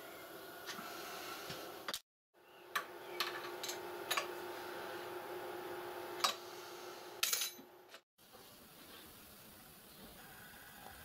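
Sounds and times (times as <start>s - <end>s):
lathe motor humming: 2.8s - 7.2s.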